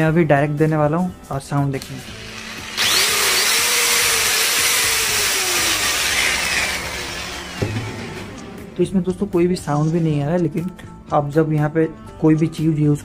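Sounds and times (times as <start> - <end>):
angle grinder running: 2.0 - 8.8.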